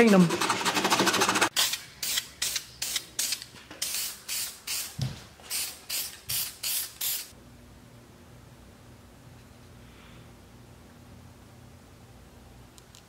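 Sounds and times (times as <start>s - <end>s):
spray paint can hissing: 1.4s - 7.3s.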